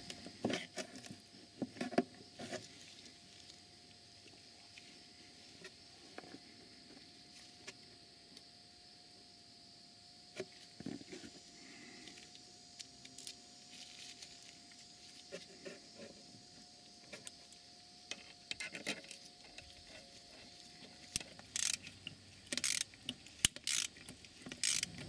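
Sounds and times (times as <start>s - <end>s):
small metal parts clinking: 12.8s - 13.4s, 21.1s - 25.0s
socket ratchet clicking: 21.2s - 21.9s, 22.5s - 25.0s.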